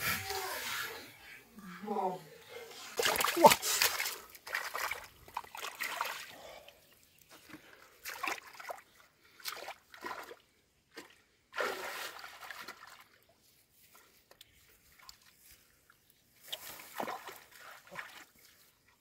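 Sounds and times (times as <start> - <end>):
hands splashing in muddy water: 3.0 - 6.4.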